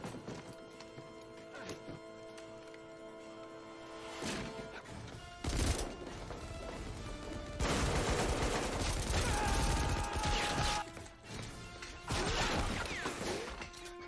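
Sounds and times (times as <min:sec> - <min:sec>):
soundtrack music: 0:00.0 - 0:14.0
rapid automatic gunfire: 0:07.6 - 0:10.3.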